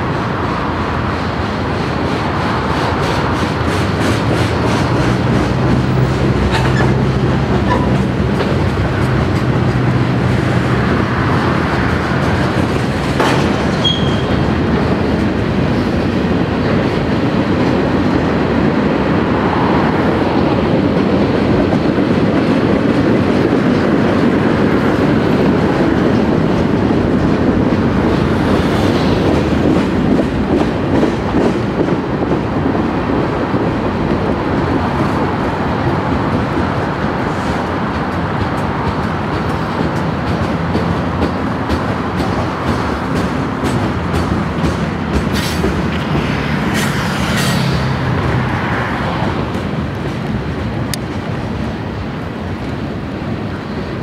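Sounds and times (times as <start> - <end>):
freight train rumbling past: 0.0 - 54.0
high wheel squeak: 13.7 - 14.4.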